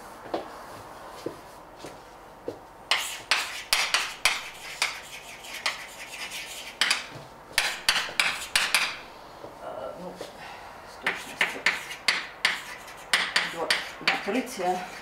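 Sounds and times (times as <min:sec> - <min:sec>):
chalk scratching on blackboard: 0:02.9 - 0:09.0, 0:11.0 - 0:15.0.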